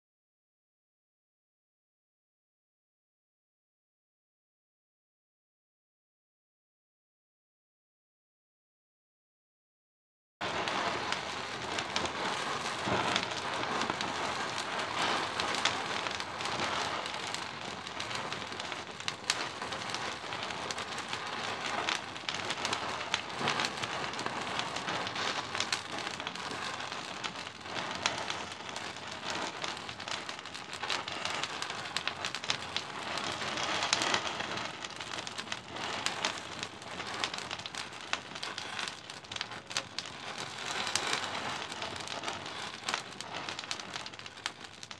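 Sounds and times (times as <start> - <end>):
matches burning and crackling: 10.4 - 44.9.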